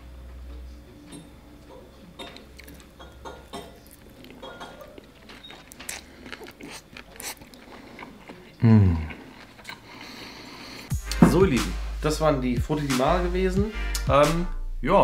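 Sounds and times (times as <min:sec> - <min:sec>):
person chewing with mouth smacks: 0:02.2 - 0:10.9
person saying mmm: 0:08.6 - 0:09.3.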